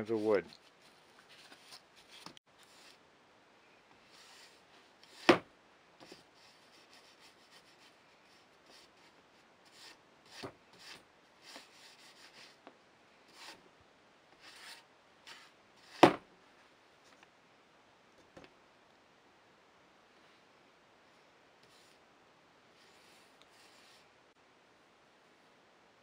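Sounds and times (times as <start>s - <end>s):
paintbrush swishing on wood: 22.8s - 24.1s.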